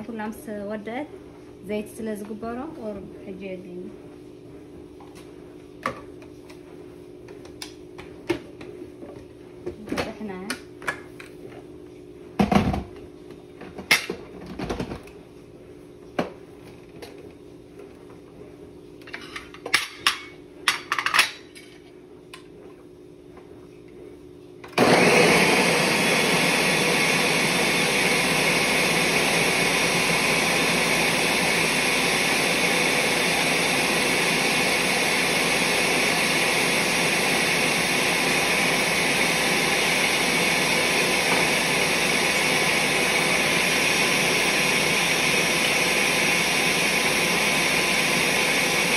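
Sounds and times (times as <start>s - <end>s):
blender running: 24.7s - 48.9s.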